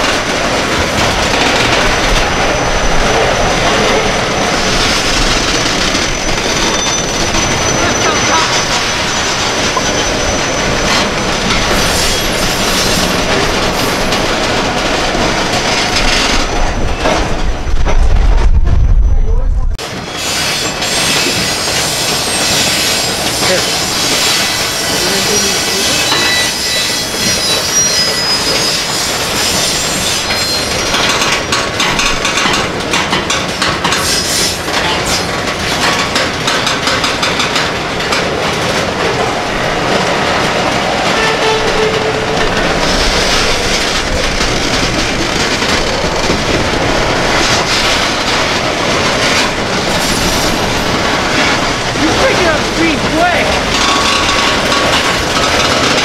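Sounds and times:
train wheels rumbling on rails: 0:00.0 - 0:56.0
train wheel squeals: 0:05.6 - 0:13.2, 0:20.0 - 0:31.4, 0:33.5 - 0:35.4.

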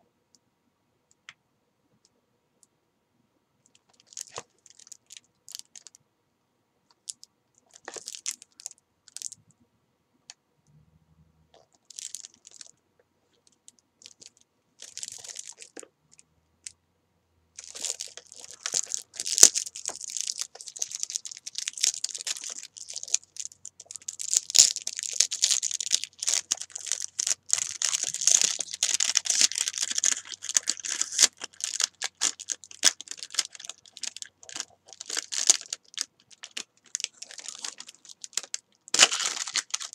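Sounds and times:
cellophane crinkling and crackling: 0:03.7 - 0:06.0, 0:07.0 - 0:09.4, 0:11.6 - 0:15.9, 0:17.6 - 0:39.9.

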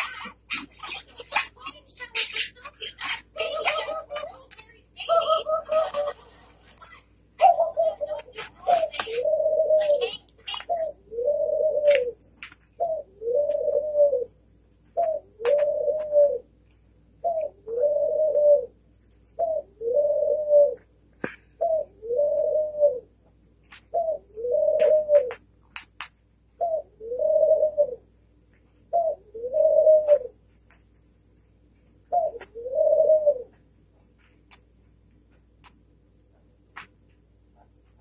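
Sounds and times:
dove cooing: 0:00.0 - 0:04.4, 0:05.0 - 0:06.4, 0:07.4 - 0:16.6, 0:17.2 - 0:23.2, 0:23.8 - 0:25.4, 0:26.5 - 0:28.2, 0:28.8 - 0:30.4, 0:32.0 - 0:33.6.

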